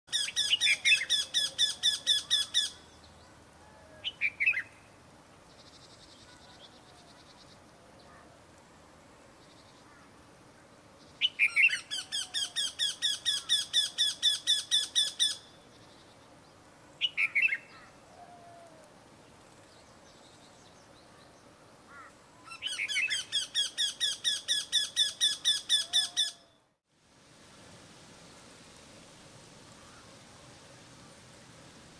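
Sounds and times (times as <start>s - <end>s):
bird calling repeated notes: 0.1s - 2.9s, 11.2s - 15.6s, 21.9s - 26.6s.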